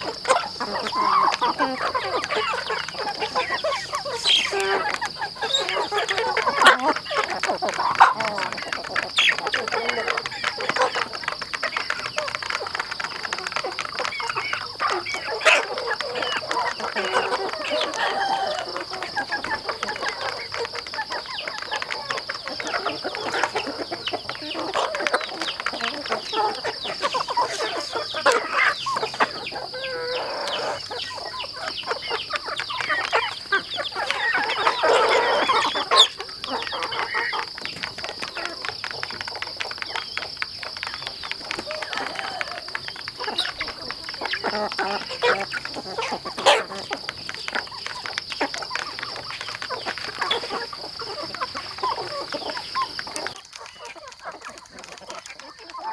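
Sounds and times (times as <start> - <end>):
chickens clucking: 0.0 - 55.9
loud chicken call: 14.8 - 20.6, 41.5 - 47.0.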